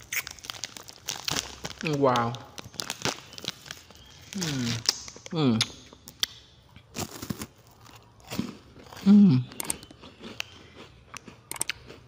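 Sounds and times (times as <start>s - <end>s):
person humming: 9.0s - 9.5s.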